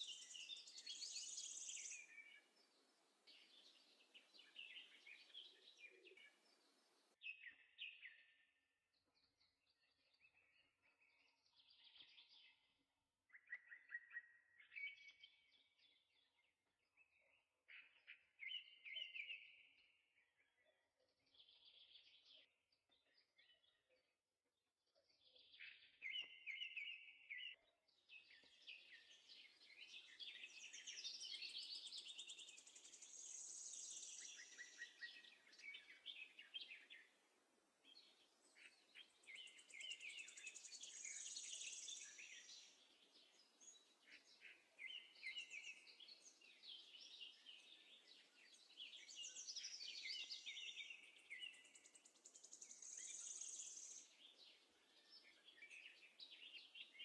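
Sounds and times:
low steady hiss: 0.0 - 7.2, 30.0 - 44.9, 52.1 - 54.9
songbird chirping and trilling: 0.0 - 24.2, 24.9 - 57.0.

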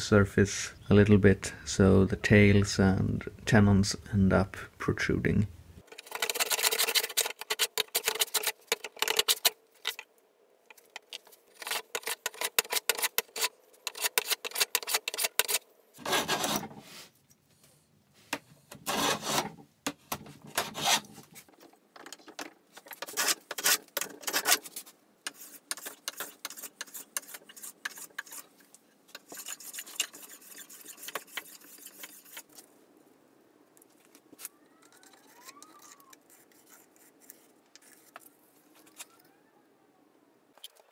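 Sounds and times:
hand plane shaving wood: 11.6 - 16.7, 18.9 - 19.5, 20.6 - 21.1, 25.3 - 28.5, 29.2 - 32.5.

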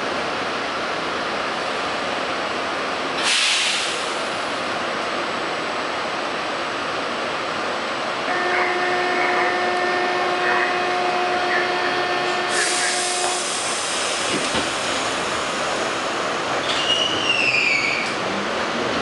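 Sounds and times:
subway car wheels rumbling on track: 0.0 - 19.0
steady whine: 8.3 - 14.1
high wheel squeal: 16.6 - 18.2.

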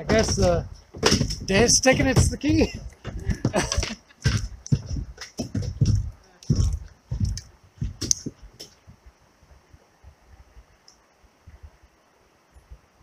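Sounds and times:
knocks and scrapes on kayak: 0.0 - 8.4
faint steady hiss: 0.0 - 13.0.

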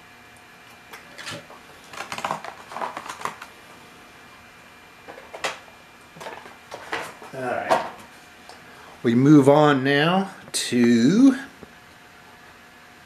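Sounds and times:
packaging clicks and rustles: 1.2 - 3.5.

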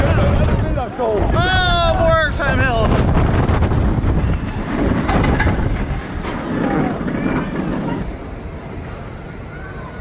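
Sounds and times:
wind rushing over microphone: 0.0 - 8.6
roller coaster rumbling on track: 0.0 - 10.0
faint rider voices: 6.3 - 10.0.

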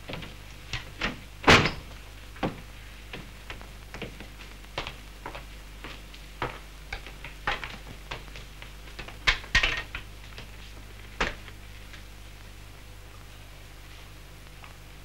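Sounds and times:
footsteps on hard floor: 2.4 - 9.2.

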